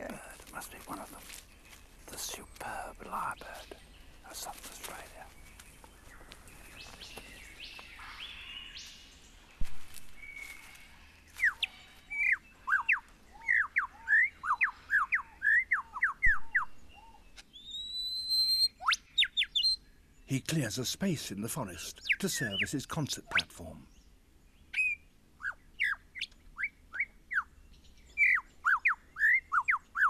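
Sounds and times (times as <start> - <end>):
rising bird call: 10.2 - 19.8, 24.7 - 27.5
bird whistled notes: 11.4 - 19.8.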